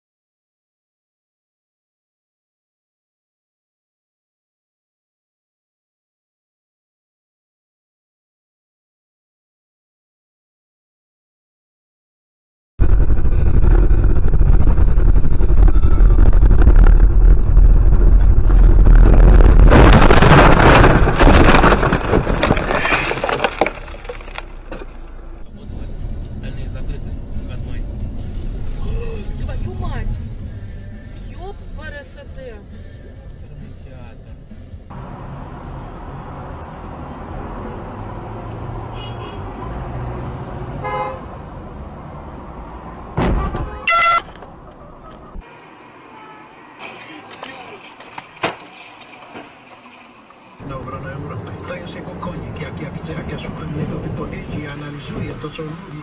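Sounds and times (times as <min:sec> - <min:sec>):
car crash and scraping: 0:12.8 - 0:25.5, 0:42.6 - 0:45.5, 0:46.6 - 0:56.0
car road and wind rumble: 0:12.8 - 0:56.0
branches cracking: 0:19.7 - 0:25.2
car horn toot: 0:38.8 - 0:39.6, 0:40.8 - 0:41.3, 0:43.2 - 0:44.4, 0:46.0 - 0:47.0.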